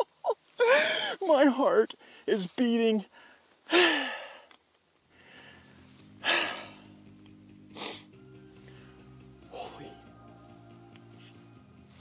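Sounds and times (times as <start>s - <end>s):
man breathing heavily: 0.6s - 1.2s, 3.1s - 12.0s
faint background music: 5.2s - 12.0s.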